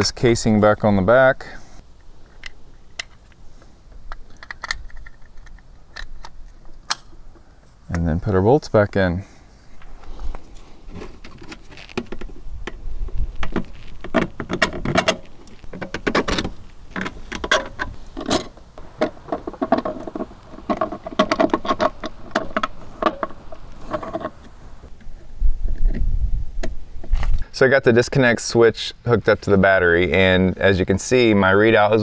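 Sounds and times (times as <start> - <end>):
steady hum: 0.0 - 29.9
plastic parts clicking and rattling: 4.0 - 7.1.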